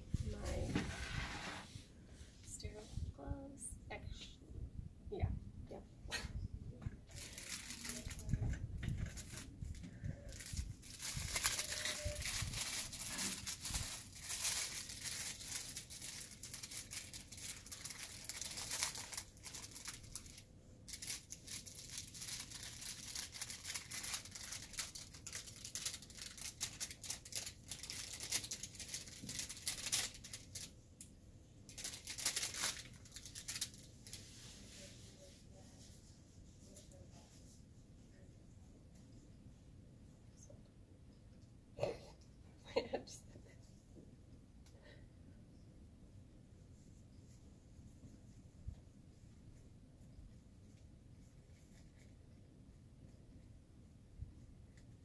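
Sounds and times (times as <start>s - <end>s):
paper packaging crinkling: 7.1s - 30.8s, 31.7s - 34.9s.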